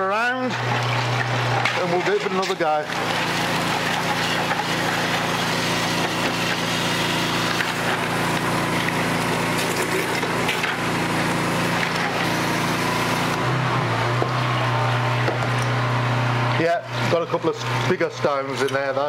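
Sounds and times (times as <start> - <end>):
pressure washer hum: 0.0 - 19.0
stones rattling through pipe: 0.1 - 11.0.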